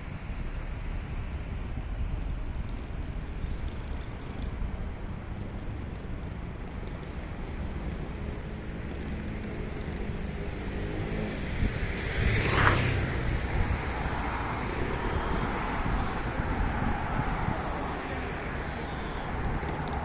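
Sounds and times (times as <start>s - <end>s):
traffic rumble: 0.0s - 20.0s
car passing close: 10.5s - 20.0s.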